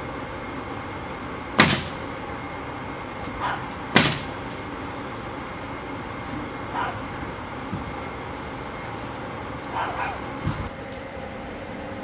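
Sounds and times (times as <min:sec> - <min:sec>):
steady background hum: 0:00.0 - 0:12.0
dog barking: 0:03.3 - 0:03.8, 0:06.7 - 0:07.2, 0:09.7 - 0:10.5.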